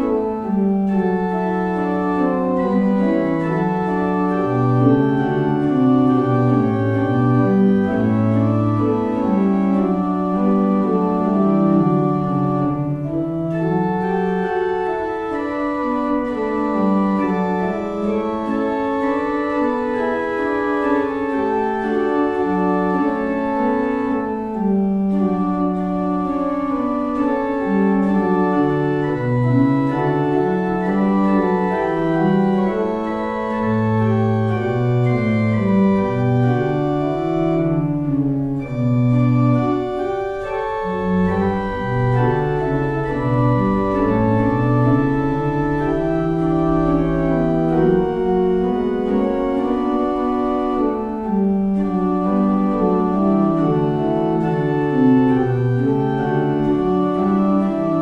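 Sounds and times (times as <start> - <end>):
organ playing slow chords: 0.0 - 58.0.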